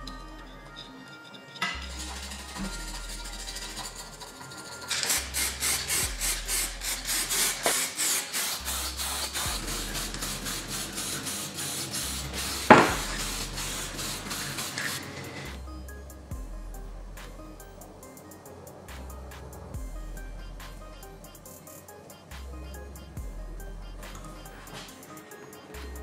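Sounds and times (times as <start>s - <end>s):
hand scrubbing strokes on metal: 1.7s - 15.6s.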